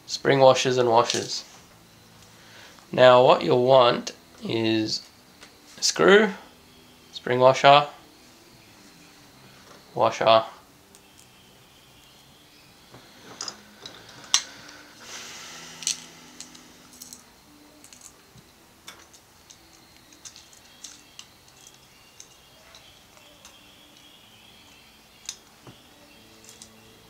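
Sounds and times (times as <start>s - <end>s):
small screws and washers clinking: 15.6s - 18.2s, 18.8s - 25.5s, 26.3s - 26.8s.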